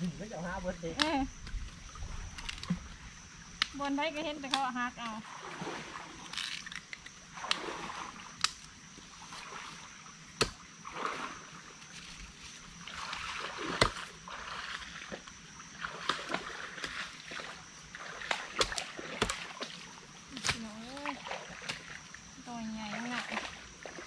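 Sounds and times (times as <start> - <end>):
plant stems snapping: 8.4 - 8.7.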